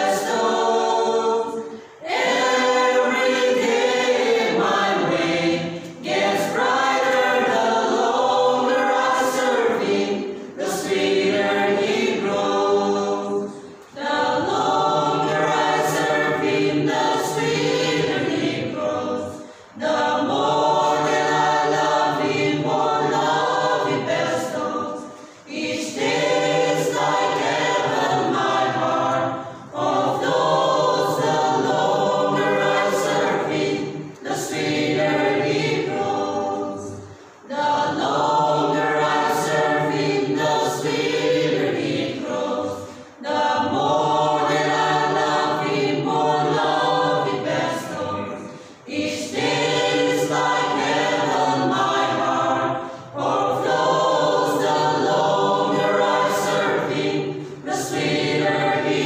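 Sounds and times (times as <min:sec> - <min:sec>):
mixed choir singing a hymn: 0:00.0 - 0:59.0.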